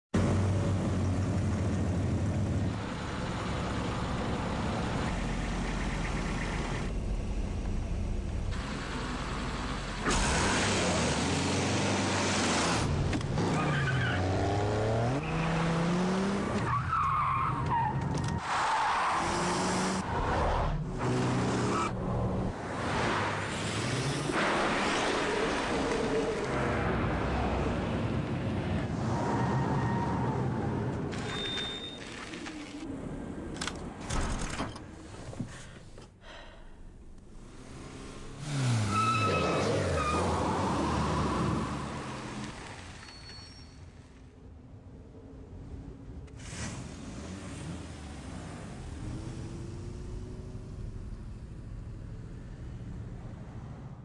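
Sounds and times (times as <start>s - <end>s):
road noise: 0.2s - 54.0s
wavering tyre squeal: 13.5s - 14.4s, 16.6s - 20.6s, 29.1s - 32.1s, 38.6s - 44.1s.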